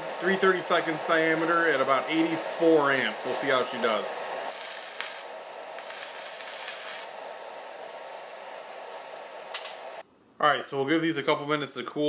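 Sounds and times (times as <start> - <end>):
welding arc crackling hiss: 0.0 - 10.0.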